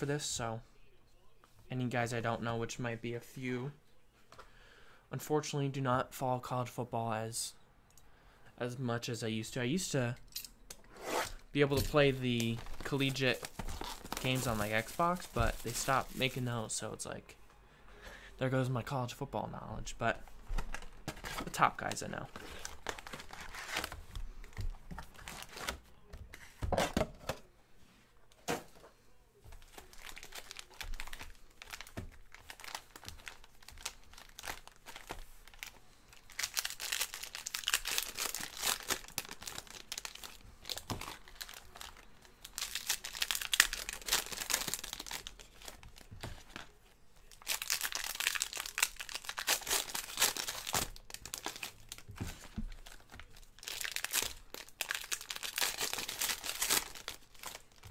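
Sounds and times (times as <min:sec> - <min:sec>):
foil packs tearing and crinkling: 0:11.9 - 0:16.4, 0:29.8 - 0:46.1, 0:47.3 - 0:57.9.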